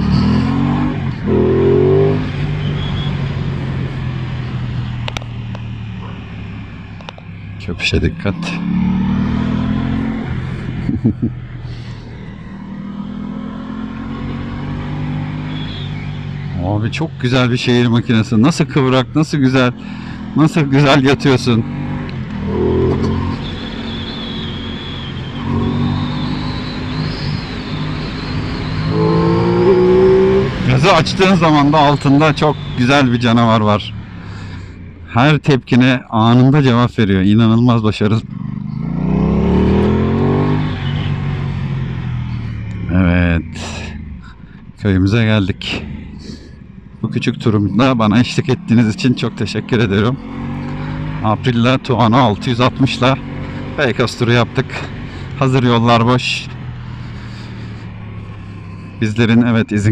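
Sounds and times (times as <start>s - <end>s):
motorcycle engine revving: 0.0s - 35.2s, 38.0s - 59.9s.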